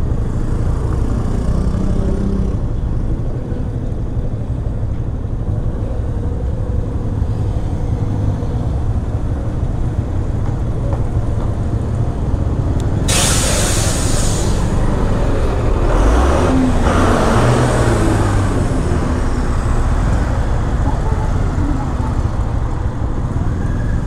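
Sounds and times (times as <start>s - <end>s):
road noise: 0.0s - 24.0s
loud hiss: 13.1s - 14.8s.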